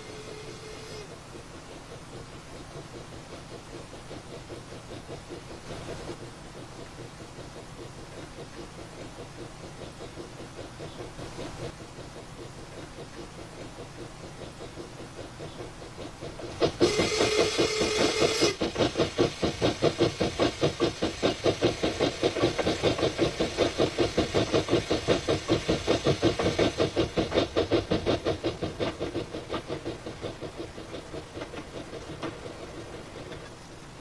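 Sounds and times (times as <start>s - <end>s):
loud steam hiss: 0.0s - 1.2s, 16.2s - 30.9s
steam locomotive chuffing: 0.0s - 34.0s.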